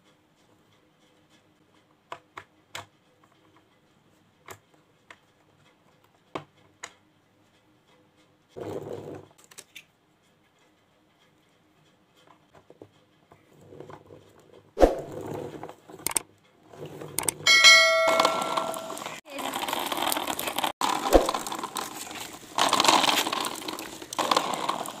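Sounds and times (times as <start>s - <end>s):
plastic toy parts clicking: 9.2s - 10.0s, 16.0s - 16.3s, 17.0s - 17.4s, 19.0s - 25.0s
ringing bell chime: 17.5s - 19.2s.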